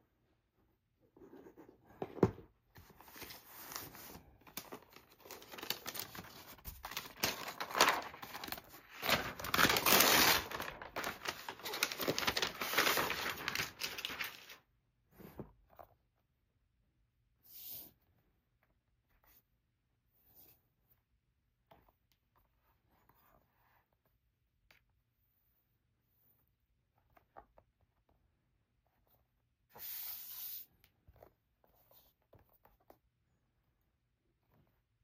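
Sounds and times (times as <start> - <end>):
paper wrapping crinkling and tearing: 3.1 - 14.6.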